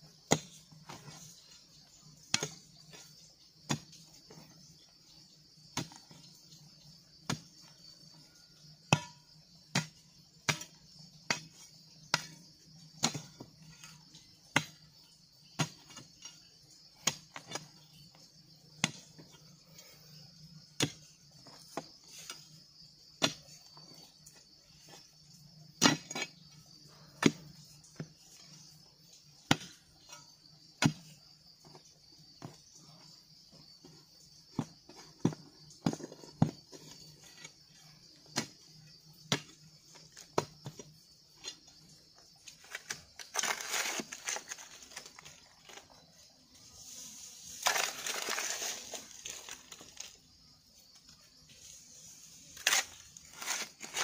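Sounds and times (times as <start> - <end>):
digging tool chopping clay: 0.3 - 1.1, 8.8 - 14.8, 17.0 - 17.7, 18.8 - 19.2, 20.8 - 22.4, 25.8 - 26.4, 27.2 - 28.1, 29.4 - 29.8, 30.8 - 31.8, 42.4 - 45.0
insects shrilling: 10.7 - 54.0.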